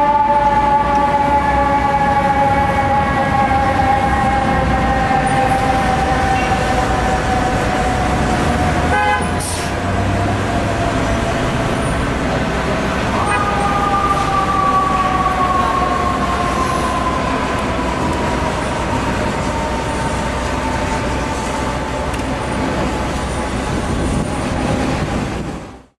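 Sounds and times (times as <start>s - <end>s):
city traffic rumble: 0.0s - 26.0s
mechanical siren winding down: 13.0s - 23.5s.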